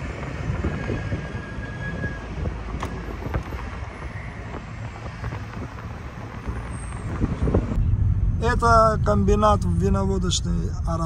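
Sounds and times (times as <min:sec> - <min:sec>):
wind buffeting microphone: 0:00.0 - 0:10.4
car road and engine rumble: 0:00.0 - 0:11.0.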